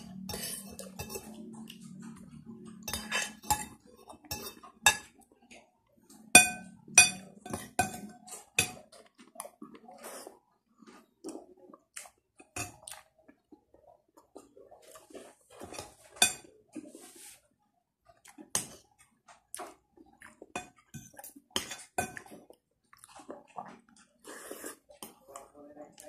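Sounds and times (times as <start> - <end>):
cutlery clinking on a plate: 0.0 - 5.1, 6.4 - 8.9, 15.6 - 16.5.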